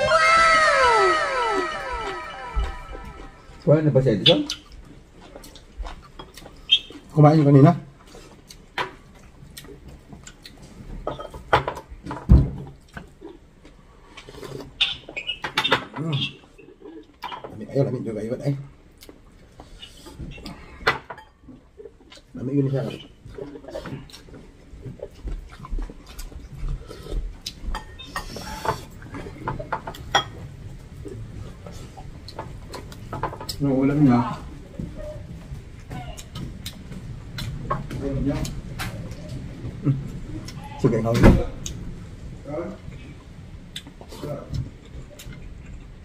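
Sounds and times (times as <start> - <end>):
chewing: 4.4 - 7.1, 21.5 - 30.1, 34.8 - 40.8.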